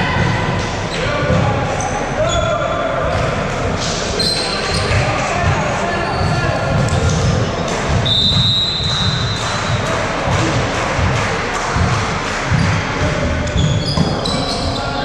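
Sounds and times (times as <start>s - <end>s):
whistle blast: 8.0s - 9.4s.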